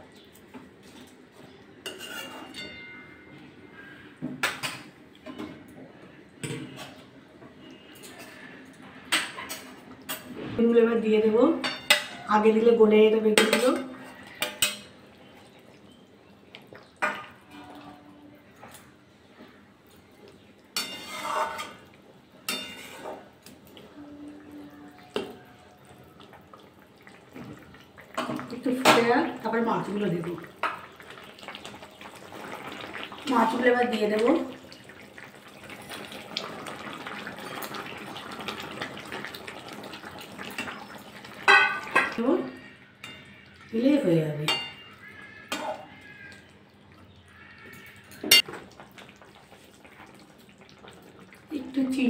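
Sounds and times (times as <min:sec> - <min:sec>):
metal spatula scraping pan: 0:01.8 - 0:03.1, 0:20.8 - 0:21.8, 0:22.5 - 0:23.2
gravy bubbling in a pan: 0:13.6 - 0:52.0.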